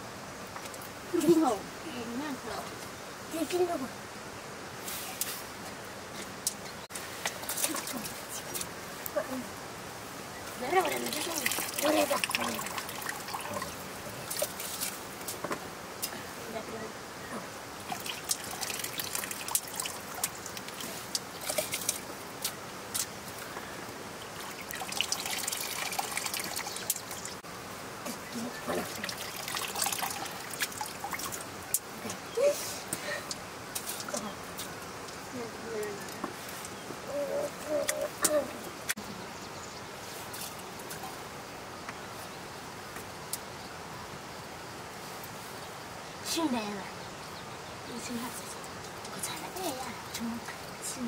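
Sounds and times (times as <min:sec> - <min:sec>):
low background hiss: 0:00.0 - 0:51.0
small splashes and drips: 0:07.2 - 0:08.8, 0:10.6 - 0:15.4, 0:17.8 - 0:27.4, 0:28.1 - 0:32.2
water trickling into a metal pan: 0:10.8 - 0:14.7, 0:17.9 - 0:22.0, 0:24.2 - 0:27.4, 0:28.8 - 0:31.5.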